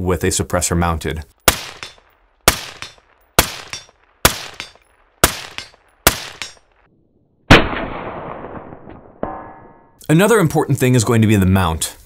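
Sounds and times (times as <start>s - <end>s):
suppressed rifle shots: 1.5s - 6.8s, 7.5s - 9.2s.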